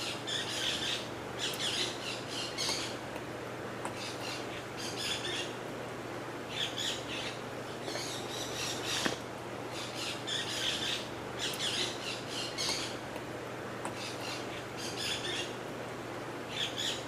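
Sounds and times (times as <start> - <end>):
macaw squawking: 0.0 - 3.0, 4.0 - 5.6, 6.5 - 9.1, 9.7 - 13.0, 14.0 - 15.6, 16.5 - 17.0.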